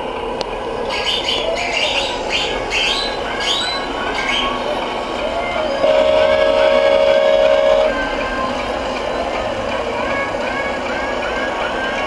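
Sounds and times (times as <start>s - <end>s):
murmur of voices: 0.8s - 12.0s
electronic two-note air horn: 5.8s - 8.0s.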